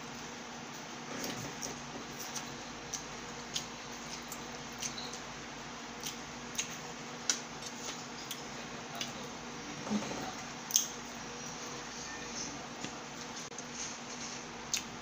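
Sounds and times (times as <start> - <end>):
faint steady hum: 0.0 - 15.0
clicks and smacks of eating: 1.5 - 5.3, 5.9 - 9.3, 10.6 - 11.0, 14.7 - 14.9.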